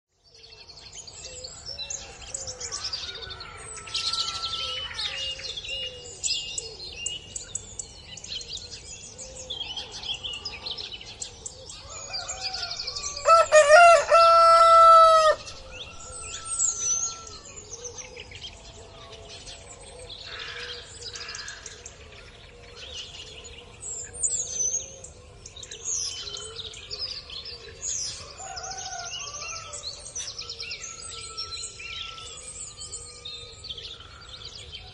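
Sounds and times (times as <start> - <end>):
small birds chirping: 0.1 - 34.9
rooster crowing: 11.8 - 17.5, 28.2 - 29.9.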